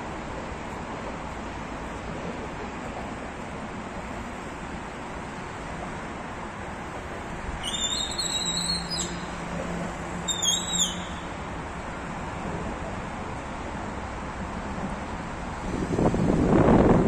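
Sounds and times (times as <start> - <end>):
road traffic: 0.0 - 17.0
high whistles: 7.6 - 9.4, 10.2 - 11.4
wind noise: 15.6 - 17.0.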